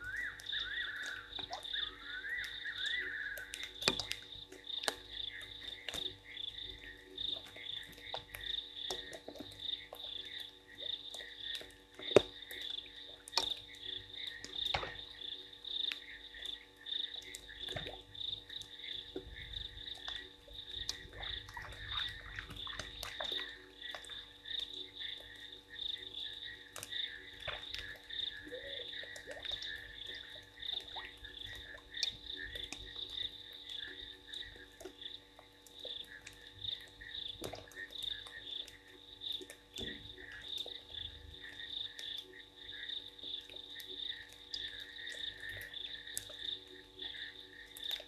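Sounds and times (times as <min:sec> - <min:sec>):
frogs trilling: 0:00.0 - 0:48.0
rain drips and ticks: 0:00.0 - 0:48.0.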